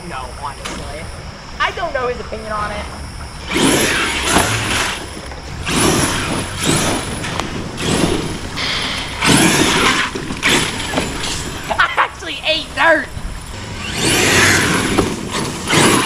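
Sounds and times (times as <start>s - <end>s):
tyres spinning in dirt: 1.7s - 16.0s
electric toy truck throttle bursts: 3.4s - 11.7s, 13.4s - 16.0s.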